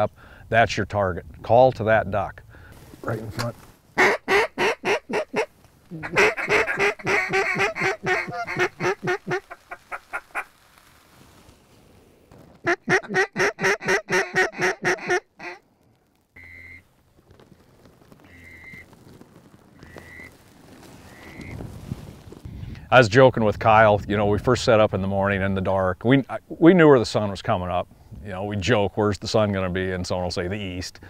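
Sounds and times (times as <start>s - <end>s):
duck calls quacking: 4.0s - 10.5s, 12.6s - 15.6s.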